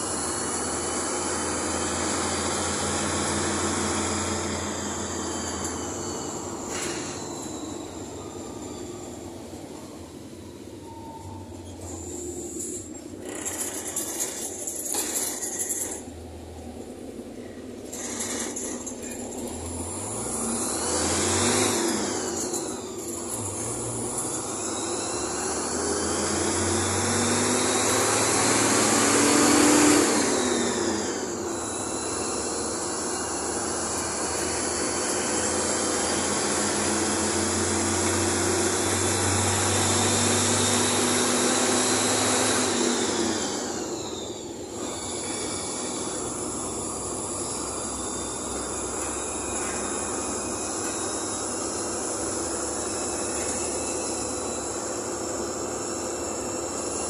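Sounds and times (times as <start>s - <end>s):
bus cabin noise: 0.0s - 57.0s
bus engine: 0.0s - 57.0s.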